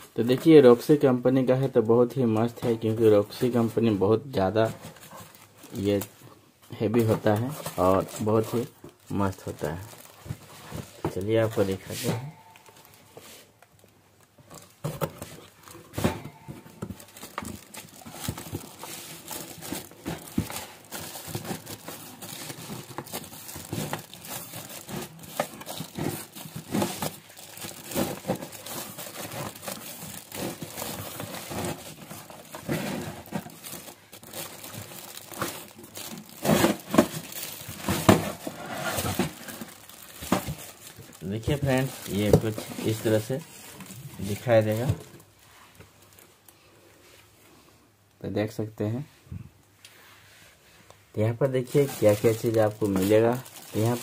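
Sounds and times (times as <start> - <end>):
plastic and cardboard crinkling: 0.0 - 46.6, 51.4 - 54.0
scrapes and light knocks: 10.2 - 12.2.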